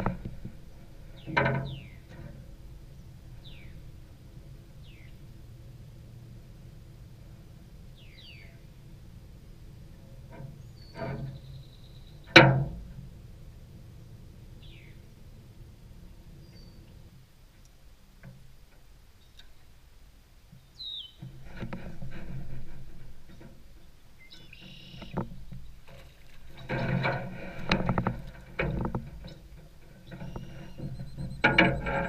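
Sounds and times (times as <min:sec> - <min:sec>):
gear clattering in aluminum canoe: 0:00.0 - 0:19.8, 0:20.5 - 0:32.0
bird chirps: 0:10.6 - 0:12.3, 0:16.4 - 0:16.9, 0:20.7 - 0:21.2, 0:24.2 - 0:25.2, 0:30.0 - 0:32.0.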